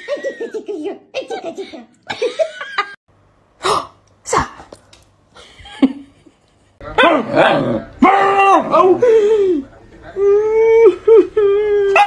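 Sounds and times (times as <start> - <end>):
woman laughing: 0.0 - 0.9, 2.1 - 3.0, 5.4 - 6.4, 10.5 - 12.0.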